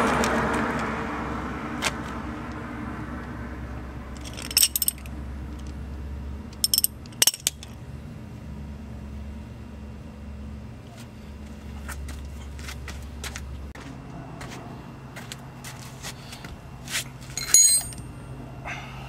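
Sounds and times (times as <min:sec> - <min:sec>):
metallic clinks of hand tools: 0:04.2 - 0:05.1, 0:06.6 - 0:07.7, 0:17.3 - 0:18.1.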